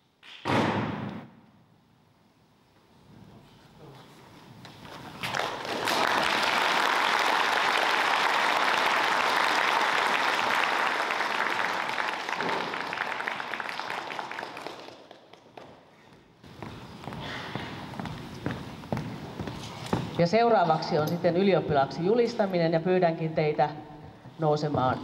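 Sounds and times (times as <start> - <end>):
audience applauding: 5.2 - 15.8.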